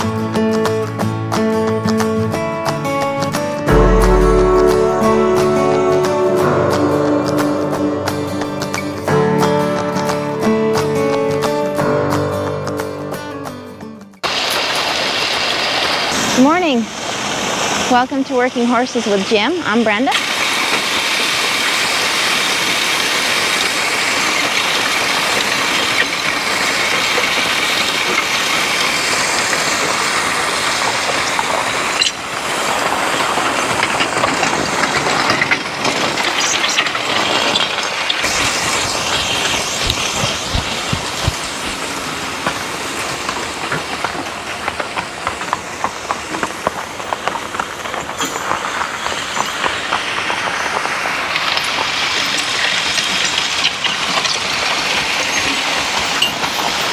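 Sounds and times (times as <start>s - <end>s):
harrow teeth scraping gravel: 22.2s - 56.9s.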